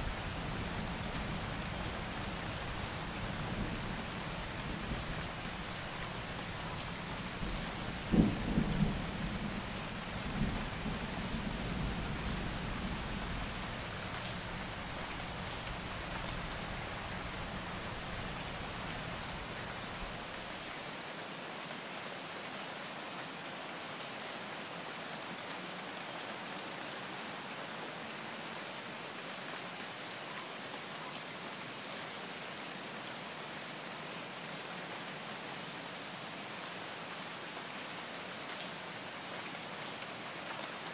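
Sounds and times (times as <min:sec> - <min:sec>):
steady rain: 0:00.0 - 0:40.9
thunder rumbling: 0:07.4 - 0:13.5.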